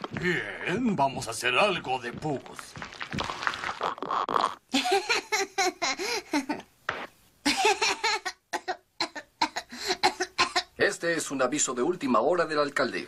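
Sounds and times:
cartoon boy coughing: 8.6s - 10.7s.

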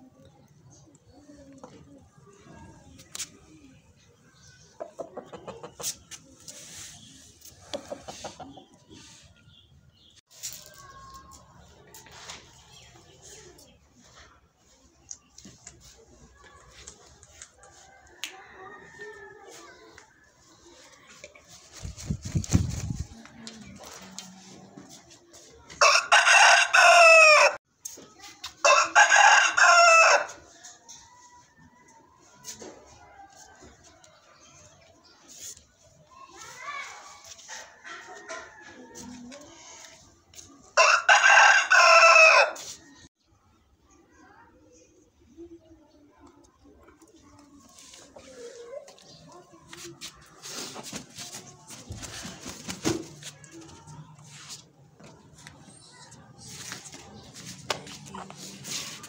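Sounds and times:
rooster clucking: 4.8s - 6.1s
rooster crowing: 40.8s - 42.6s.

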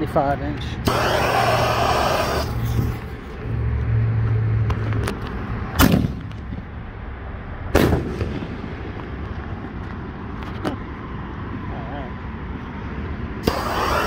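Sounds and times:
firework launch bang: 0.9s - 2.5s, 5.8s - 6.3s, 7.7s - 9.0s, 13.4s - 14.0s.

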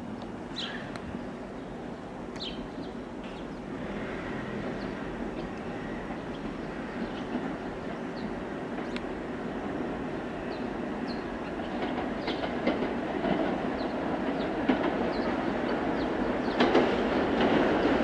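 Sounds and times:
subway train rumbling: 0.0s - 18.0s
wheels clicking over rail joints: 11.1s - 18.0s.

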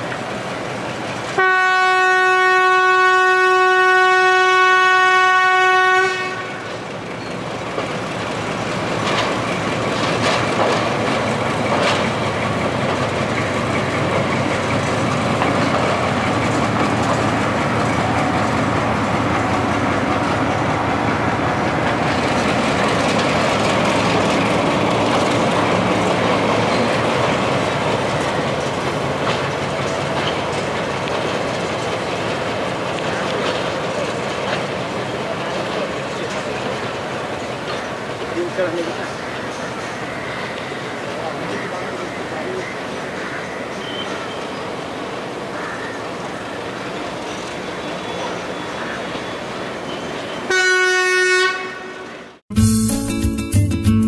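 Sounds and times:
locomotive engine running: 0.0s - 50.4s
locomotive horn blast: 1.4s - 6.8s, 50.4s - 52.4s
wheels clicking over rail joints: 6.2s - 50.5s.

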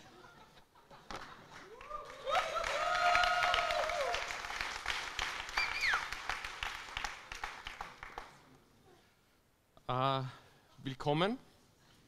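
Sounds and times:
audience applauding: 1.5s - 8.4s
voices over clapping: 1.6s - 8.3s.

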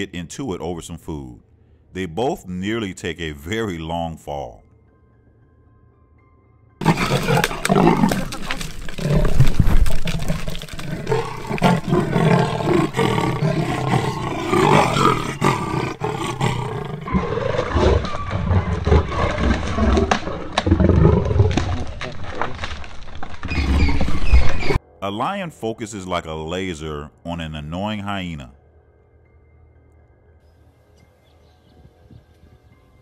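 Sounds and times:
leopards growling: 6.8s - 24.8s.

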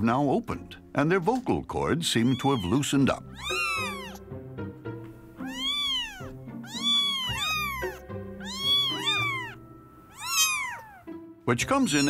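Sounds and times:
kittens mewing: 2.2s - 4.3s, 5.4s - 11.1s.

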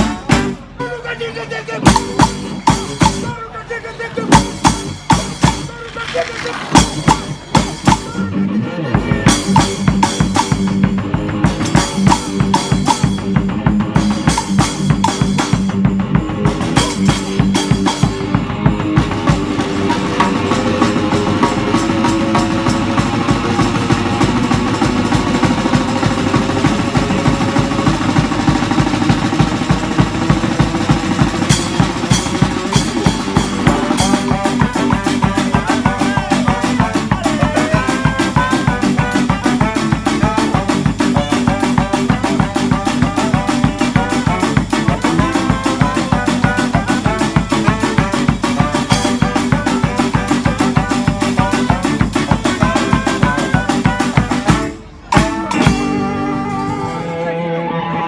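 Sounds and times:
fast drum beat: 0.0s - 0.8s, 1.8s - 3.4s, 4.3s - 5.8s, 6.6s - 8.2s, 9.0s - 57.1s
horns holding long notes: 0.0s - 58.0s
street brass band playing: 0.0s - 58.0s.

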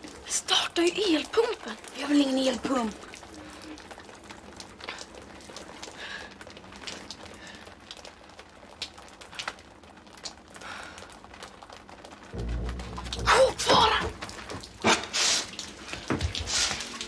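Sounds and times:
low steady hiss: 12.3s - 17.0s.

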